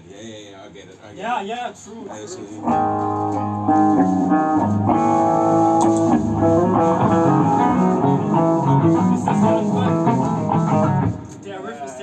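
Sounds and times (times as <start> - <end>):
heavy electric guitar riff: 2.6 - 11.4.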